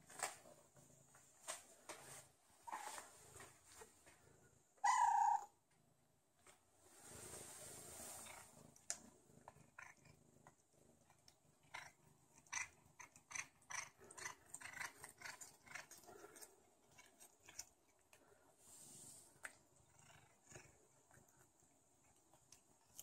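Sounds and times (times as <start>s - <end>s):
cat chewing meat: 8.8s - 18.5s.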